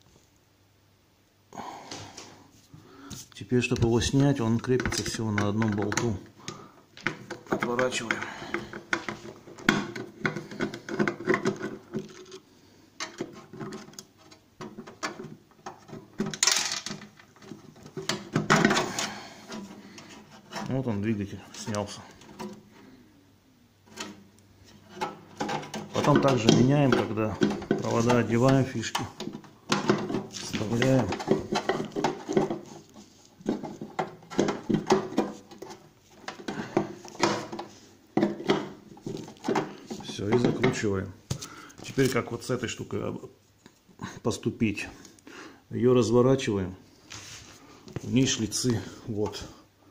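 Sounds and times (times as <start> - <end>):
handling clicks and knocks: 3.6 - 12.4, 13.0 - 22.7, 23.9 - 42.3.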